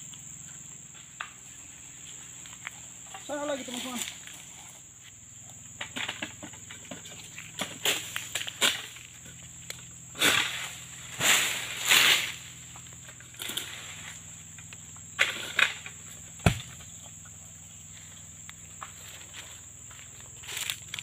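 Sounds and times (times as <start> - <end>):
high insect buzz: 0.0 - 21.0
blade scraping through palm fronds: 10.2 - 12.5
heavy thud on ground: 16.4 - 16.9.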